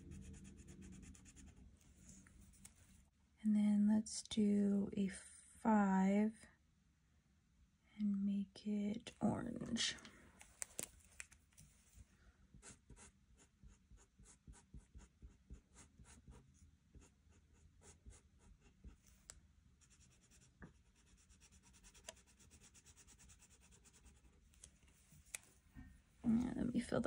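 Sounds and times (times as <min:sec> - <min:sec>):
felt-tip marker scribbling on paper: 0:19.8 - 0:24.3.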